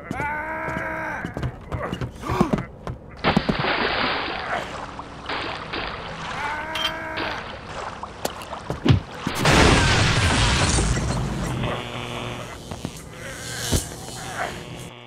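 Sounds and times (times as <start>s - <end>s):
electrical crackling and hissing: 9.3s - 15.0s.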